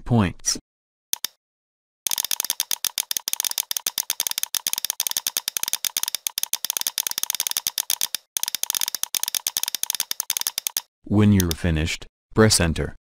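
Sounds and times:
rapid mouse clicking: 1.2 - 1.4, 2.1 - 11.7.

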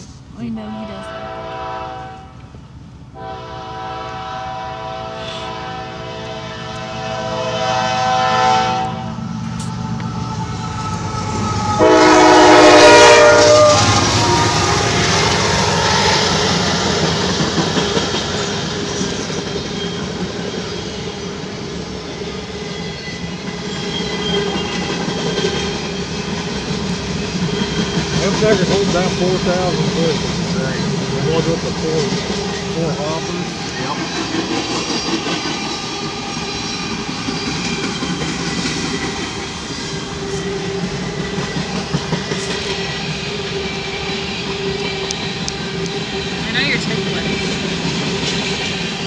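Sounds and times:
train cars rumbling and clacking: 0.0 - 49.0
locomotive horn blast: 0.6 - 2.5, 3.1 - 9.3, 11.3 - 16.6.

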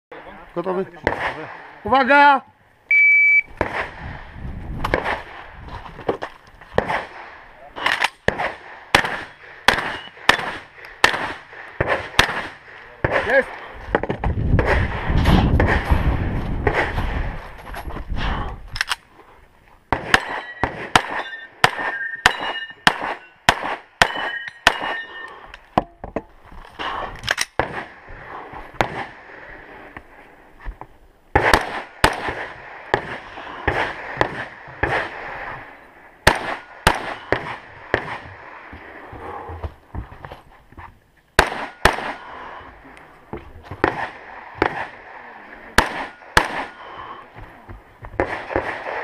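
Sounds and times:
gunshots: 0.8 - 2.2, 3.5 - 5.6, 6.7 - 17.4, 19.9 - 25.2, 26.8 - 29.9, 31.3 - 38.7, 41.4 - 42.7, 43.7 - 47.2, 48.2 - 49.0
metallic ringing of targets: 20.2 - 23.4, 24.0 - 25.4.

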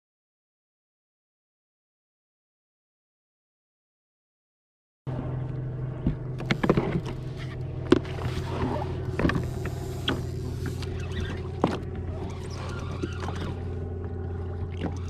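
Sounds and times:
jet ski engine idling: 5.1 - 15.0
fishing reel clicks and knocks: 9.0 - 11.9.

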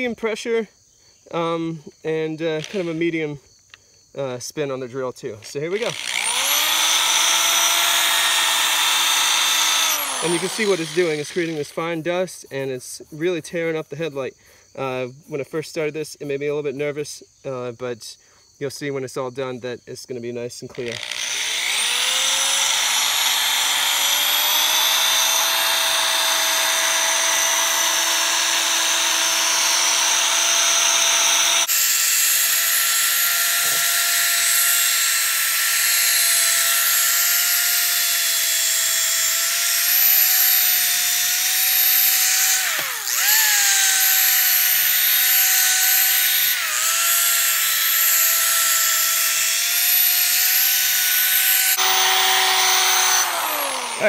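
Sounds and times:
electric drill sanding plastic: 2.6 - 3.2, 5.6 - 11.8, 20.7 - 54.0.

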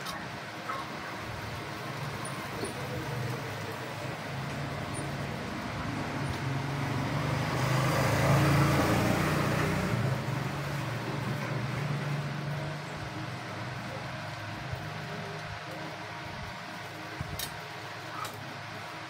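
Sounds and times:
motor vehicle passing: 1.2 - 15.2.

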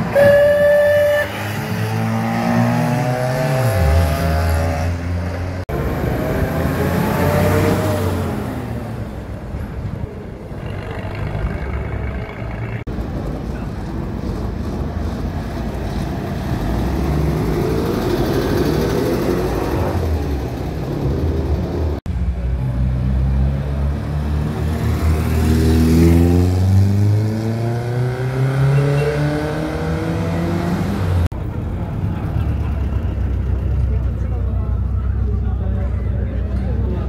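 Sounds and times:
car engines accelerating past: 1.4 - 9.1, 22.8 - 31.3.

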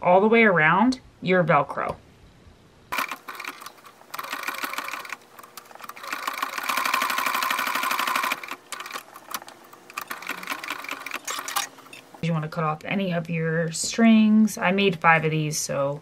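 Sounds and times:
sewing machine stitching: 2.9 - 12.0.

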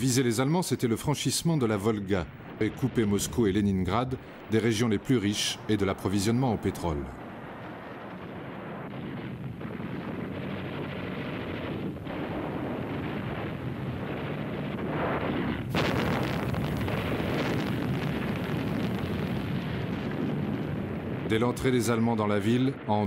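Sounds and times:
explosions: 0.9 - 23.0
gunfire: 14.9 - 19.3.

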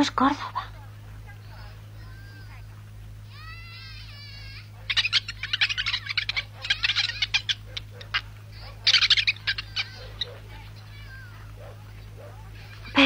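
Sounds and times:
cartoon monkey squeaky chattering: 3.9 - 11.2.

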